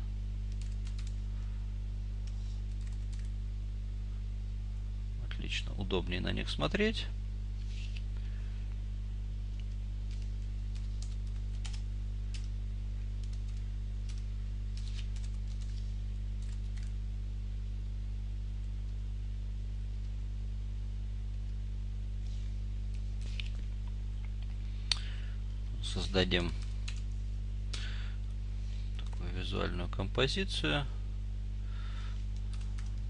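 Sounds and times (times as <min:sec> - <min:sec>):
low mains hum: 0:00.0 - 0:33.0
keyboard typing: 0:00.5 - 0:01.2, 0:02.2 - 0:03.3, 0:09.6 - 0:12.5, 0:13.2 - 0:15.8, 0:32.4 - 0:33.0.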